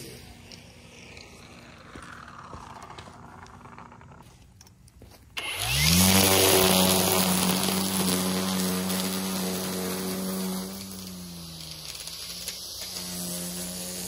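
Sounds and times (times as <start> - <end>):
string trimmer motor whine: 0.0 - 14.0
trimmer line hissing through grass: 5.4 - 14.0.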